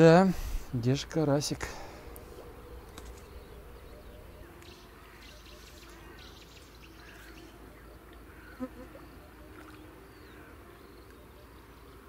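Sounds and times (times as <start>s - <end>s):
flying insects buzzing: 0.3s - 12.0s
bird chirps: 2.6s - 12.0s.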